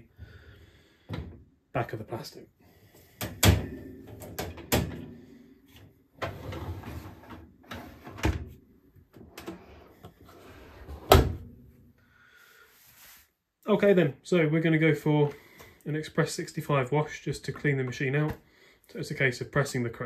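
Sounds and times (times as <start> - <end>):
dishwasher racks clicking and rattling: 3.3 - 5.2.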